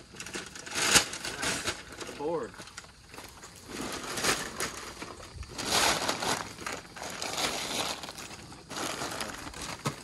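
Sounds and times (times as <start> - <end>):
packing paper crinkling: 3.3 - 10.0.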